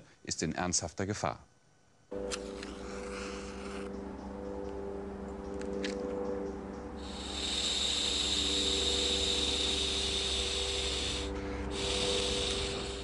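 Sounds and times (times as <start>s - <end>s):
low steady hum: 0.0s - 13.0s
smoker hissing: 6.9s - 13.0s.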